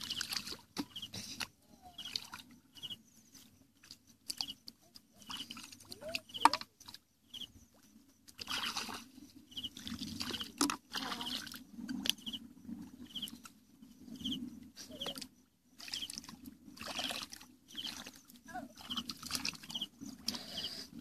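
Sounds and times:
hands splashing in muddy water: 0:08.4 - 0:09.1.

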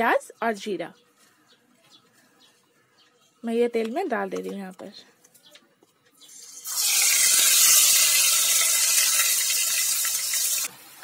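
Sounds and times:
paste sizzling in hot oil: 0:06.3 - 0:11.0.

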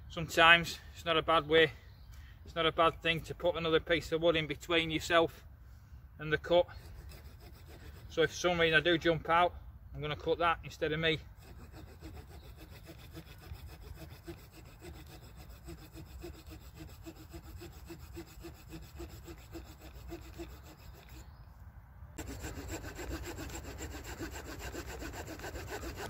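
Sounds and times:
small saw cutting wood: 0:06.6 - 0:08.4, 0:11.4 - 0:21.4, 0:22.2 - 0:26.0.

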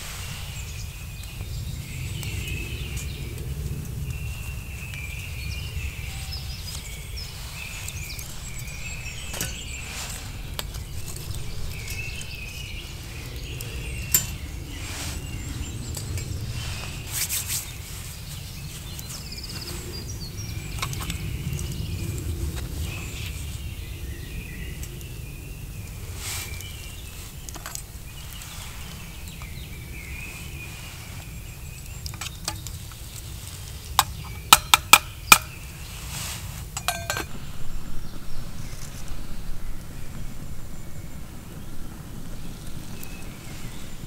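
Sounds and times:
low rumble: 0:00.0 - 0:26.0, 0:36.9 - 0:44.0
metal cookware clinking: 0:36.8 - 0:37.4.

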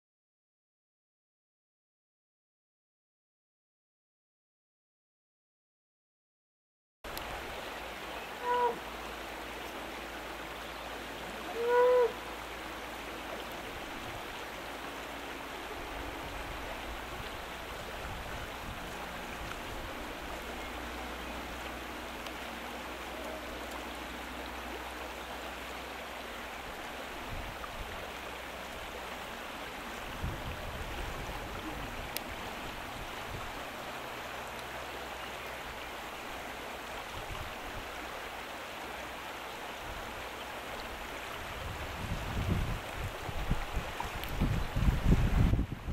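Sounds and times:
river flowing over stones: 0:07.1 - 0:45.9
short pitched calls: 0:08.2 - 0:08.9, 0:11.4 - 0:12.3.

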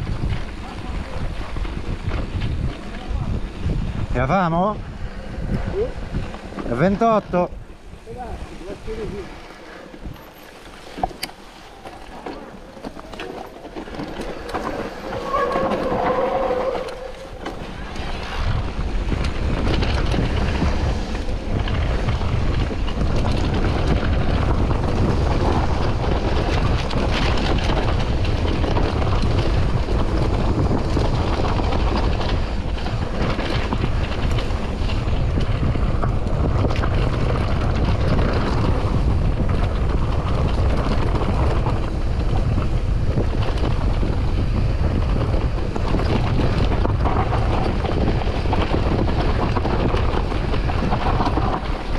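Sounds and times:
bike rattling over bumps: 0:00.0 - 0:51.9
tyres running over a trail: 0:00.0 - 0:51.9
wind buffeting the microphone: 0:00.0 - 0:51.9.

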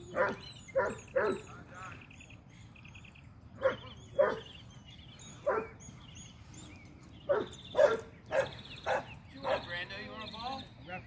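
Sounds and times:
dog barking: 0:00.1 - 0:01.5, 0:03.6 - 0:04.5, 0:05.4 - 0:05.8, 0:07.3 - 0:09.7.

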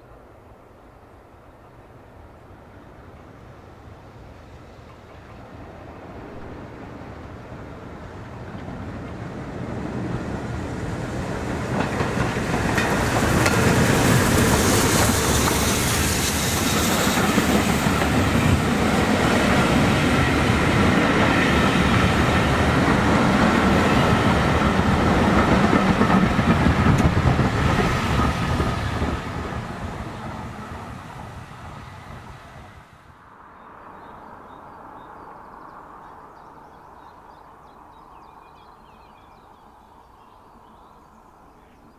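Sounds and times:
outdoor background: 0:00.0 - 0:41.9
train wheels clattering over rails: 0:10.0 - 0:31.3.

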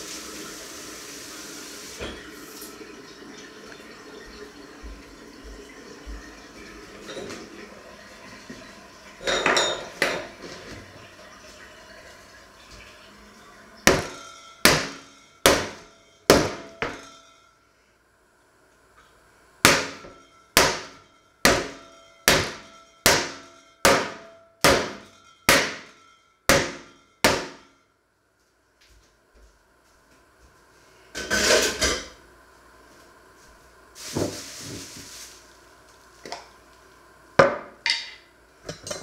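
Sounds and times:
metal pot pounding meat: 0:13.8 - 0:17.0, 0:19.6 - 0:27.7.

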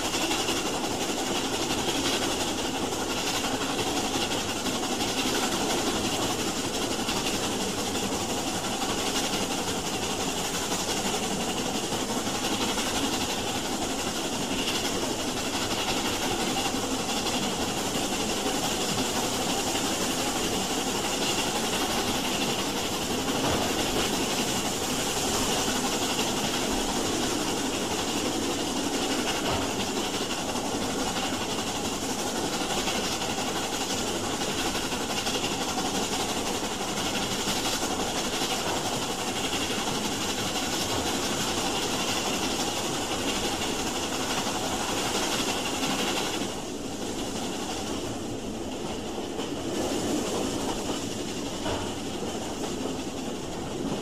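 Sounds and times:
steam train running with hiss: 0:00.0 - 0:54.0.

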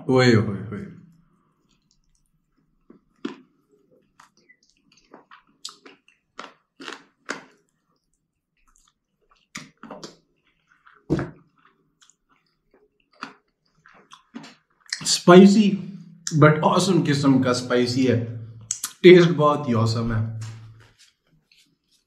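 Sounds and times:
person chewing crunchy chicken: 0:01.5 - 0:15.0
thump: 0:11.1 - 0:11.3.

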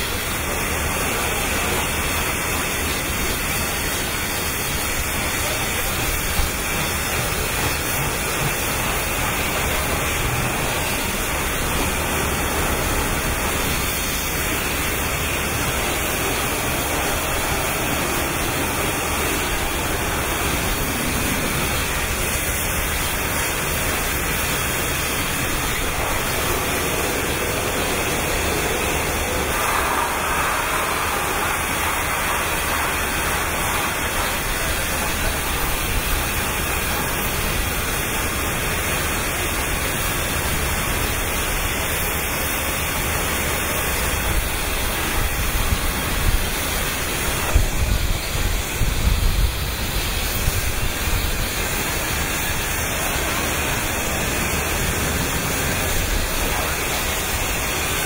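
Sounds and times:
steady rushing noise: 0:00.0 - 0:58.0.

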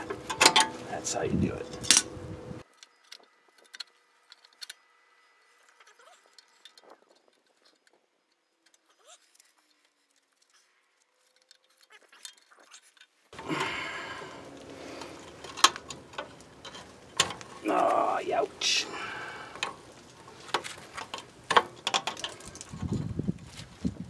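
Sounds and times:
brake drum scraping: 0:00.0 - 0:02.7, 0:13.4 - 0:24.0.

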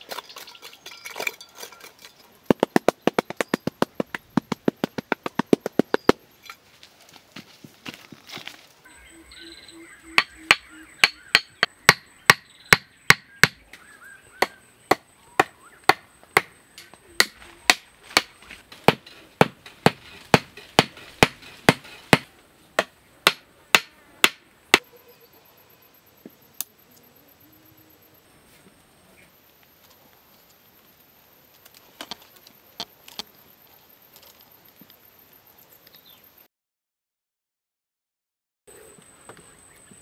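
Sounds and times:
tool chopping wood: 0:02.5 - 0:06.2, 0:10.2 - 0:13.6, 0:17.2 - 0:24.4.

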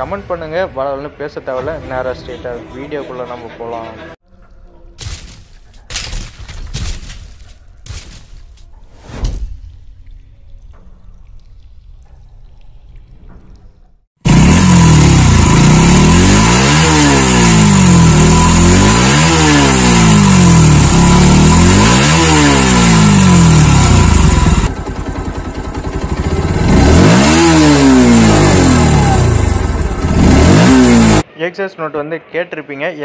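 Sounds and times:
motorcycle engine revving: 0:14.2 - 0:31.3.

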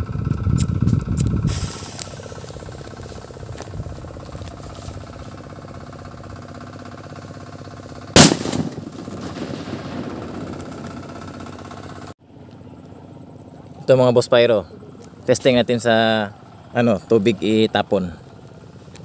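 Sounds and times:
fuse hissing: 0:01.4 - 0:12.1
firecracker bang: 0:08.2 - 0:12.0.

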